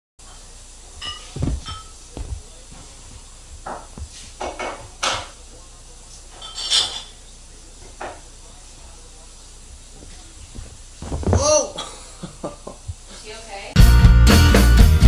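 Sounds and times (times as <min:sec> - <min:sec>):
kitten landing with soft thumps: 0:01.3 - 0:03.0, 0:10.0 - 0:11.4.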